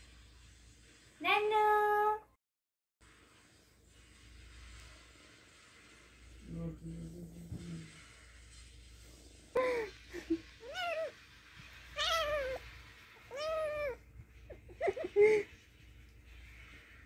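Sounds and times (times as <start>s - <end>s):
kitten meowing: 11.9s - 12.6s, 13.2s - 14.0s.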